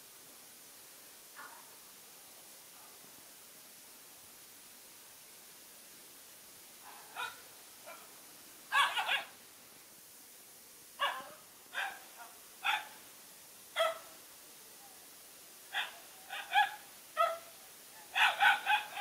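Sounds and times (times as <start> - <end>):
young dogs yelping barks: 8.7 - 9.3, 11.0 - 13.0, 13.8 - 14.1, 15.7 - 17.5, 18.1 - 19.0.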